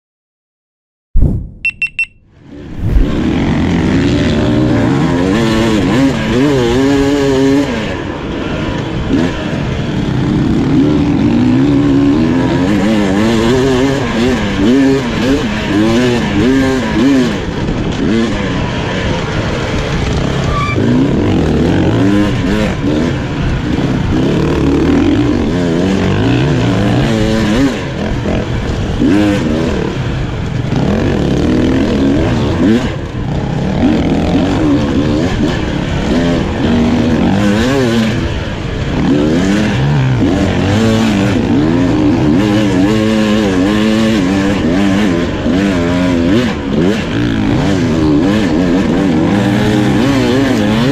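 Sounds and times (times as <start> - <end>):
dirt bike engine revving: 2.5 - 50.9.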